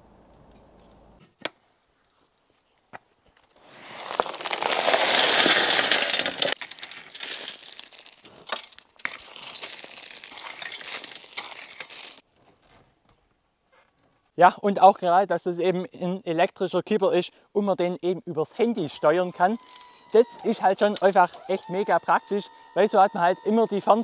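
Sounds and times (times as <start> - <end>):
gravel sliding off trailer: 3.6 - 12.2.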